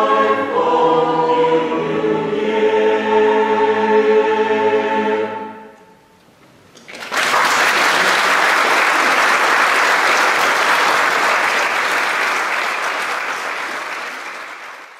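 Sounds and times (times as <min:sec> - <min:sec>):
choir final chord: 0:00.0 - 0:06.0
audience applauding: 0:06.8 - 0:14.9.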